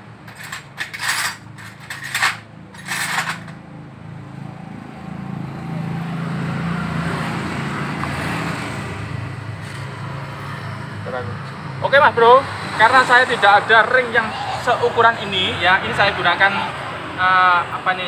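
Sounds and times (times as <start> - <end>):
metal parts clinking: 0.3 - 3.6.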